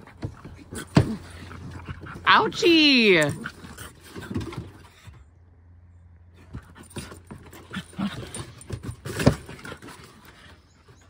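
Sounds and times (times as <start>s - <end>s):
dogs snorting: 0.0s - 2.3s, 3.2s - 5.2s, 6.3s - 11.0s
dogs panting: 0.0s - 2.6s, 6.3s - 11.0s.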